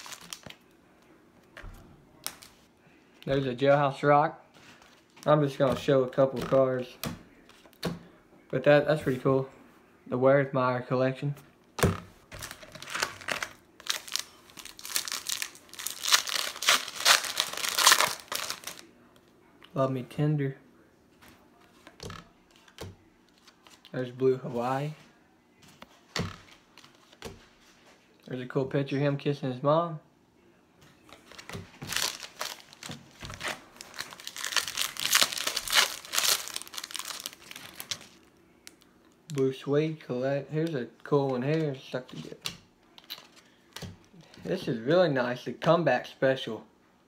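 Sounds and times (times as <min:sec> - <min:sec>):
wrapper crinkling and tearing: 0:00.0 - 0:00.6, 0:12.4 - 0:18.9, 0:31.3 - 0:39.4.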